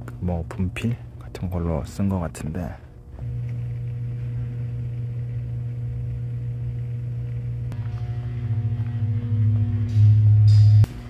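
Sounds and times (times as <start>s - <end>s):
low hum: 2.7s - 11.0s
pulsing hum: 2.8s - 11.0s.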